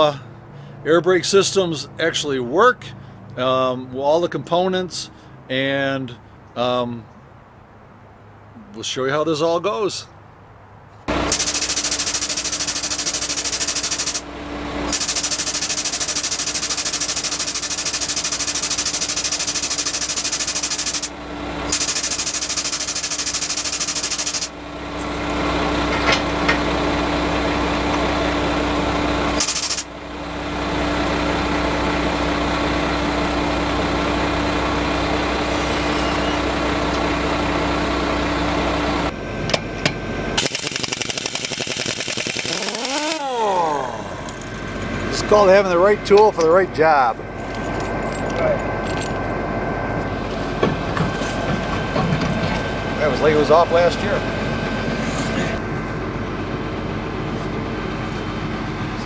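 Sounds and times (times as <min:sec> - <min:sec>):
machine hissing and humming: 0:11.1 - 0:25.8, 0:26.4 - 0:30.8, 0:40.4 - 0:45.4.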